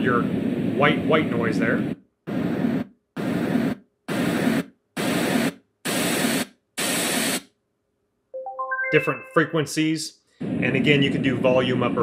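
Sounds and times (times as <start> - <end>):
white noise bursts: 0.0 - 7.5.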